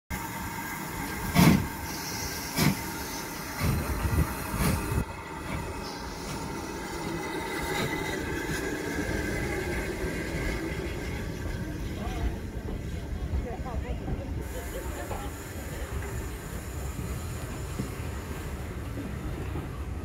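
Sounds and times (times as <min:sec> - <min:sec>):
steam locomotive exhaust chuffs: 0:00.2 - 0:20.0.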